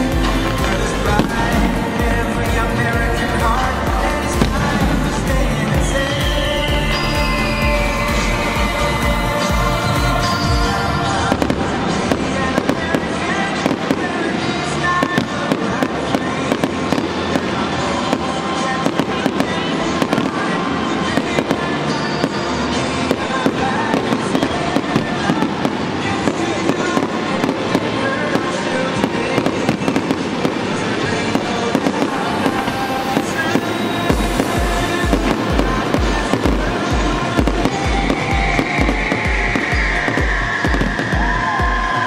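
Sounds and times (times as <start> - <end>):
steady low beat: 0.0 - 12.7, 34.0 - 42.0
fireworks bangs and crackling: 0.0 - 42.0
song over sound system: 0.0 - 42.0.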